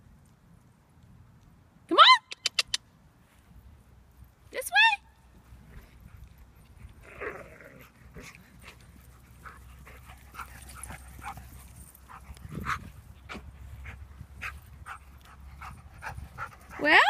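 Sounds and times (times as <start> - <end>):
dog play noises: 5.3 - 17.0
dogs panting: 7.8 - 17.0.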